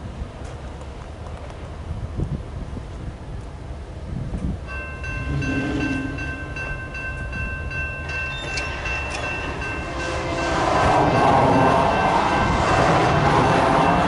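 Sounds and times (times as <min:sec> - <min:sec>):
crossing warning bell dinging: 0:04.6 - 0:14.0.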